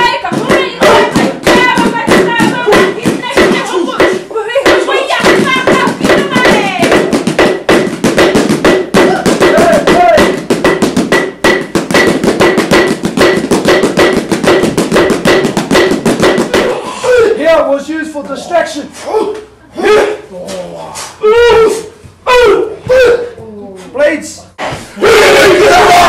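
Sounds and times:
voices singing: 0:00.0 - 0:07.1
poi balls tapping on bodies: 0:00.0 - 0:16.8.

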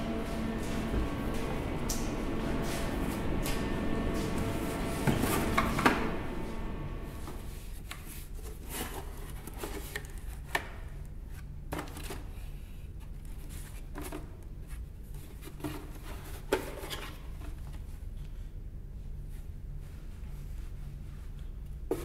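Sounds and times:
low steady hum: 0:00.0 - 0:09.2.

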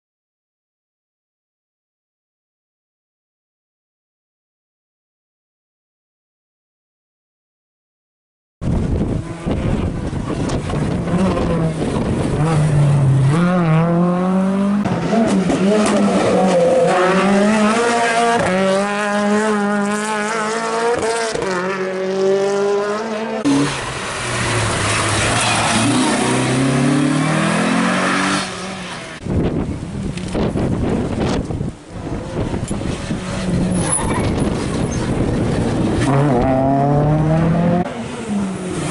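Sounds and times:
race car engines revving: 0:08.7 - 0:38.9
race cars passing: 0:08.7 - 0:38.9.

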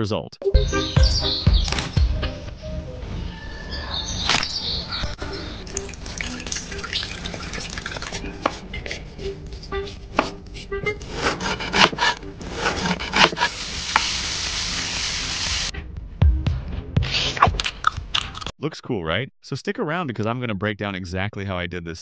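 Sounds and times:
knife chopping: 0:08.4 - 0:08.6, 0:09.9 - 0:14.1
food sizzling in a pan: 0:13.4 - 0:15.7.

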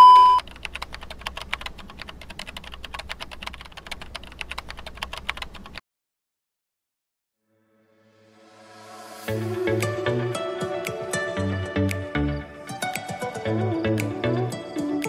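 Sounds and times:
keyboard typing clicks: 0:00.0 - 0:05.8.

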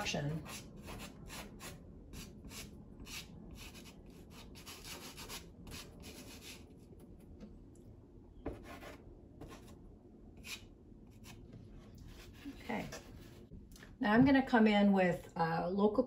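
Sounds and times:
pastel stick scraping on paper: 0:00.4 - 0:06.7.

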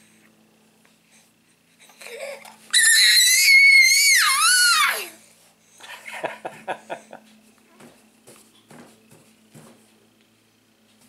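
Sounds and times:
baby screaming: 0:02.1 - 0:05.2.

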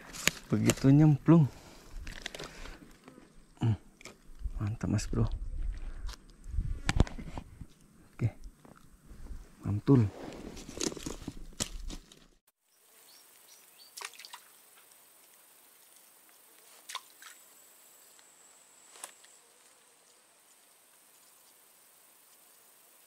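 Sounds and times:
grass and leaves rustling: 0:00.0 - 0:23.0
swamp background: 0:00.0 - 0:23.0
handling noise: 0:10.2 - 0:12.4.

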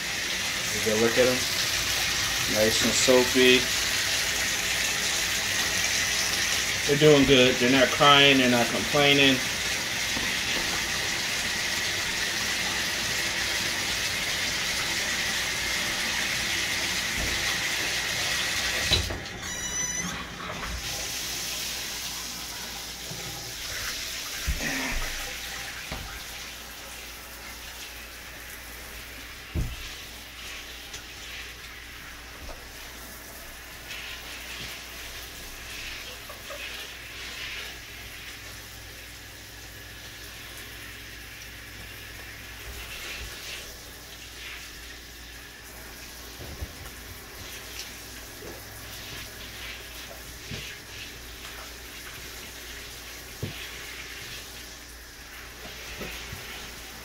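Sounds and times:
water running into bathtub: 0:00.0 - 0:57.0
thump: 0:29.5 - 0:29.8.

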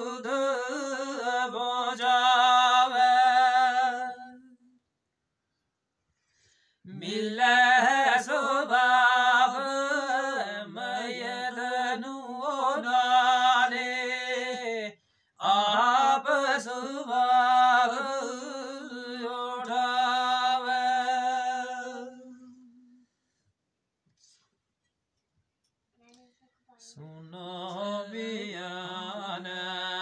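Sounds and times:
man breathing: 0:06.1 - 0:06.9.

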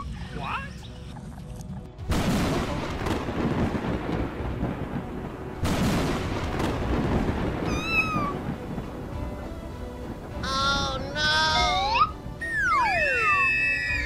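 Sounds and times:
rain: 0:02.0 - 0:12.4
thunder crash: 0:02.1 - 0:11.0
kitten meowing: 0:07.6 - 0:08.4.

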